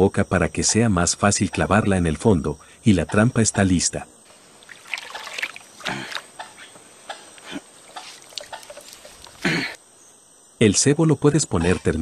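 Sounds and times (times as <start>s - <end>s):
muddy water splashing and trickling: 4.3s - 6.4s, 7.8s - 9.5s.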